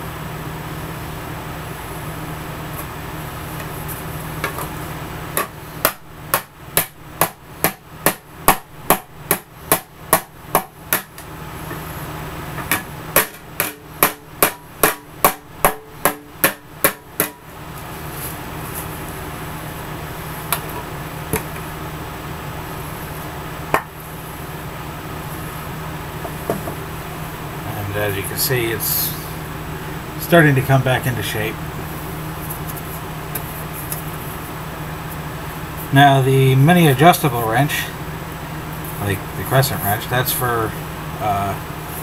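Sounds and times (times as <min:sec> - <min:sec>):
hammer beating metal plate: 0:12.7 - 0:17.4.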